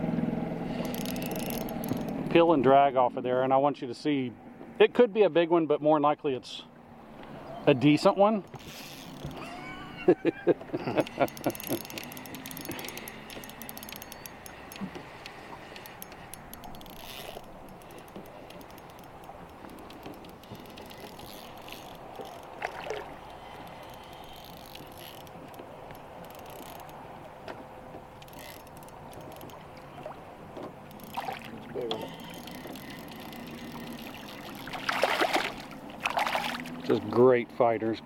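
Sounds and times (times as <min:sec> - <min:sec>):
fishing reel ratcheting and clicking: 0:00.7 - 0:02.3, 0:08.6 - 0:09.4, 0:11.0 - 0:22.6, 0:23.2 - 0:27.0, 0:28.2 - 0:29.6, 0:30.9 - 0:34.8.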